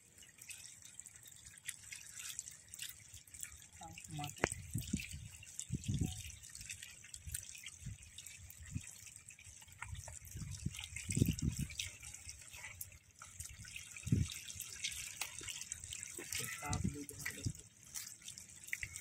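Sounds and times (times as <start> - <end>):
small water splashes: 0.0 - 19.0
water trickling and dripping: 0.0 - 19.0.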